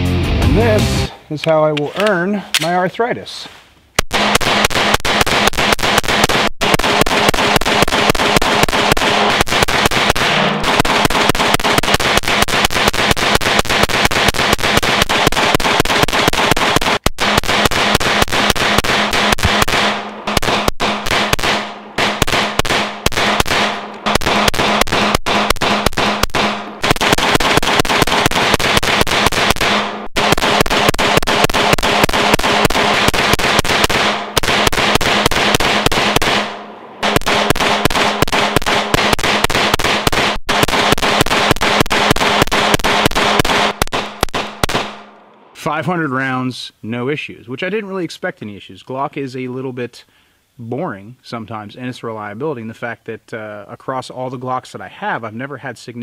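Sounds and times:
background music: 0.0 - 1.2
rapid pistol shots: 4.0 - 45.2.

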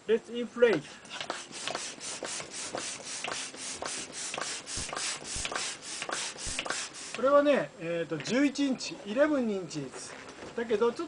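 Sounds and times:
hand pump air strokes: 0.8 - 7.4.

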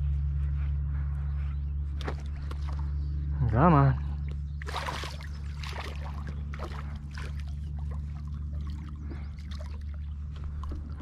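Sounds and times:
steady low hum: 0.0 - 11.0
fish splashing at surface: 4.6 - 8.0.

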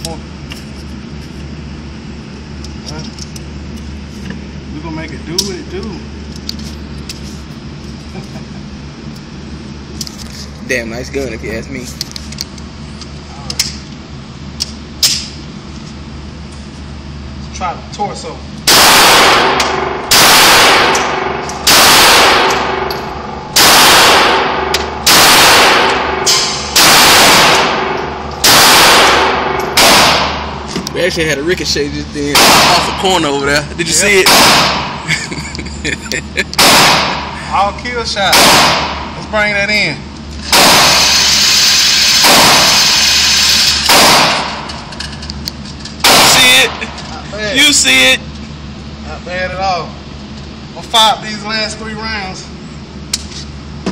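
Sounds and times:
pistol shots echoing indoors: 18.7 - 22.9, 23.5 - 30.6, 32.4 - 33.0, 36.6 - 37.3, 38.3 - 39.1, 42.1 - 43.0, 43.9 - 44.6, 46.1 - 46.6.

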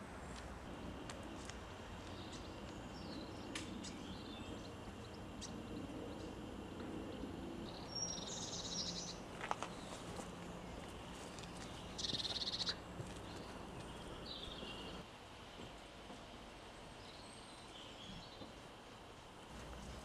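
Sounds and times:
small bird chirping trill: 7.1 - 10.0, 10.6 - 15.0.

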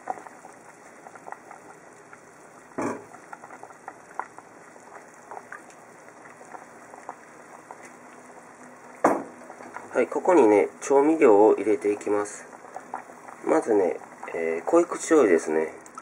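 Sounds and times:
pot bubbling at a boil: 0.0 - 16.0
pot knock: 2.8 - 3.1, 9.0 - 9.3.

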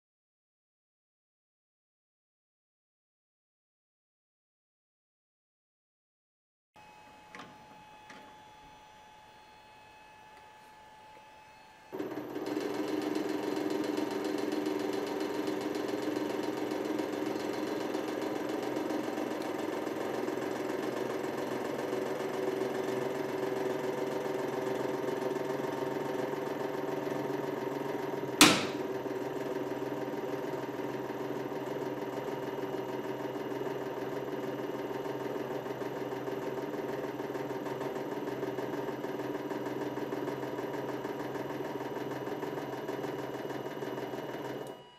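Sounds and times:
hydraulic pump motor humming: 6.8 - 32.2.

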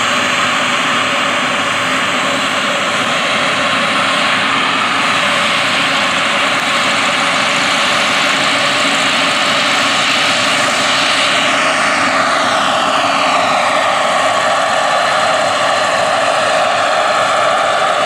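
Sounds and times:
helicopter rotor noise: 0.0 - 18.0
model helicopter turbine whine: 0.0 - 18.0.

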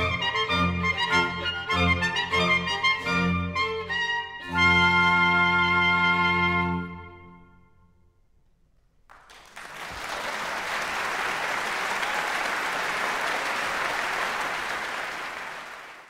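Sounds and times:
baroque ensemble chord: 0.0 - 7.8
audience applause: 9.1 - 16.0.

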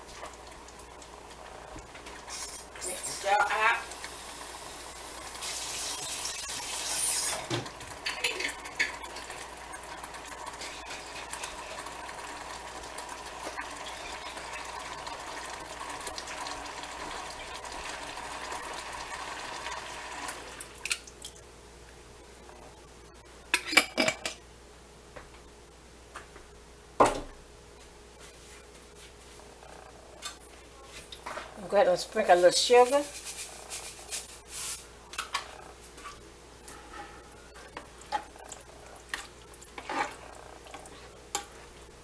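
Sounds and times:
sauce hissing in a pan: 2.2 - 20.6, 33.0 - 34.9
water pouring into pan: 2.2 - 21.0.

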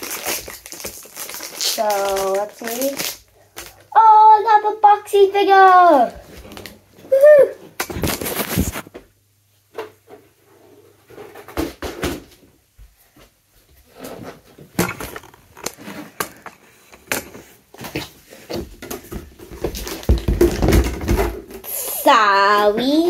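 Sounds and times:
camera knocking and rubbing: 7.9 - 8.9.

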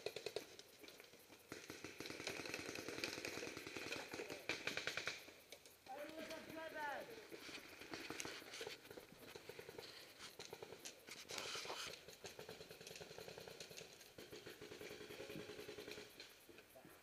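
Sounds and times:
distant paintball markers firing: 1.5 - 5.3.

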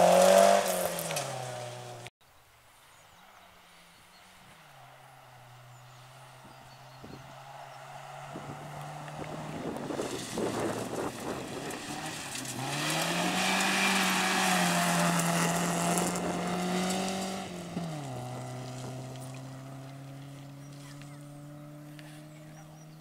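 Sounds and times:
rally car engine at full throttle: 0.0 - 2.1, 4.5 - 23.0
tyres spraying gravel: 0.0 - 2.1, 8.8 - 22.5.

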